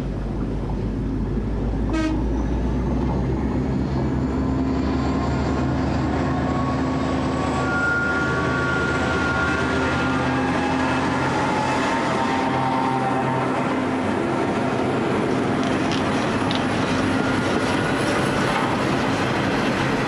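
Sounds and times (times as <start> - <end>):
locomotive engine drone: 0.0 - 20.0
wheel and rail noise: 0.0 - 20.0
high-pitched whine: 3.6 - 13.8.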